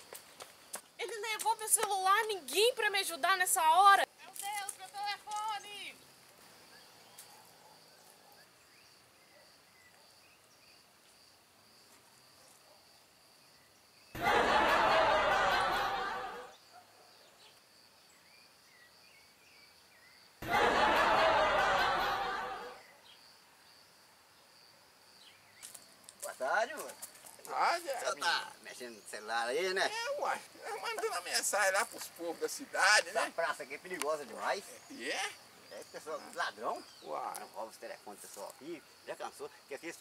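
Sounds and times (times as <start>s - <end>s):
crowd laughter: 14.2s - 16.5s, 20.4s - 22.8s.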